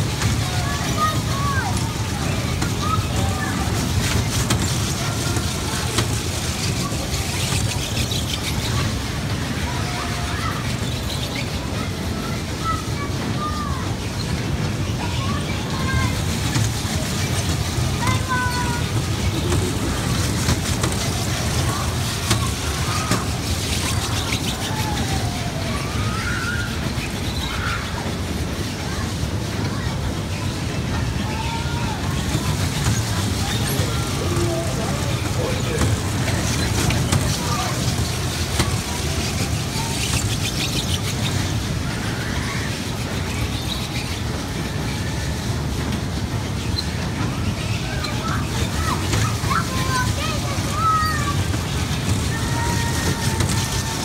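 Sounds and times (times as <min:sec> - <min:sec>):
hum of rides and games: 0:00.0 - 0:54.0
indoor arcade din: 0:00.0 - 0:54.0.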